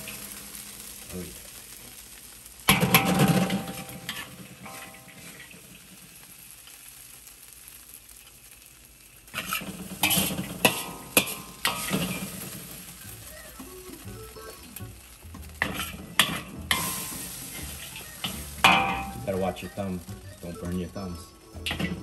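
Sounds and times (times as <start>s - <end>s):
metal spatula scraping a wok: 2.7s - 5.6s, 9.3s - 13.0s, 15.6s - 19.2s, 21.6s - 22.0s.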